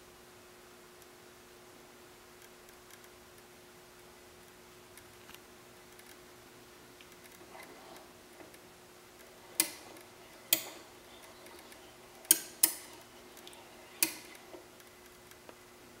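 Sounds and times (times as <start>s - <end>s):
faint steady hum: 0.0s - 16.0s
sharp clicks: 9.2s - 15.5s.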